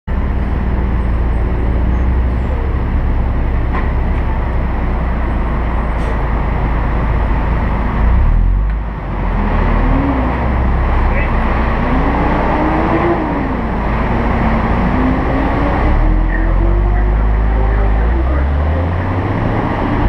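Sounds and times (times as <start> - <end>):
vehicle engine idling: 0.1 - 12.3.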